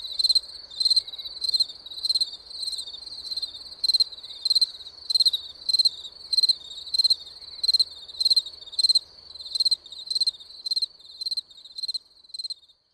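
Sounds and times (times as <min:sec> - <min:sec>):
cricket chirping: 0:00.0 - 0:12.9.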